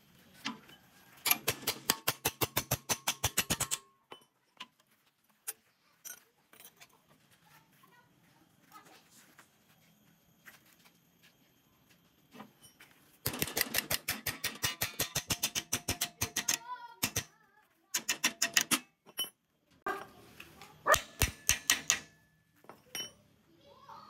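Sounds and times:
hammer striking steel bar: 0:01.3 - 0:03.9, 0:13.3 - 0:17.3, 0:20.9 - 0:22.2.

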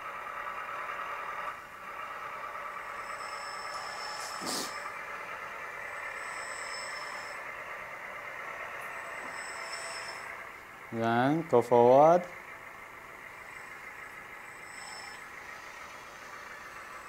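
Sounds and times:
engine running sound effect: 0:00.0 - 0:17.0
reversing alarm beeps: 0:02.8 - 0:05.0, 0:05.9 - 0:07.5, 0:08.7 - 0:10.4, 0:14.4 - 0:15.4.

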